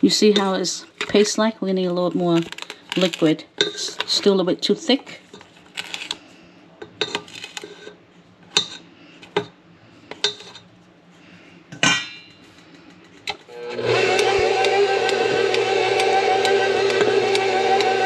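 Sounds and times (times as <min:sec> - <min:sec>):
stand mixer running: 0:13.5 - 0:18.0.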